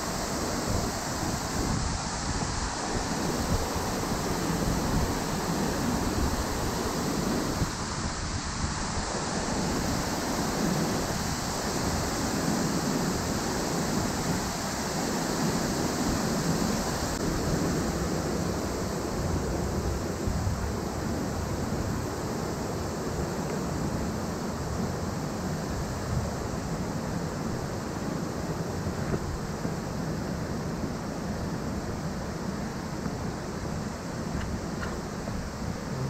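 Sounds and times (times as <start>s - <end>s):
waterfall roaring: 27.9s - 36.0s.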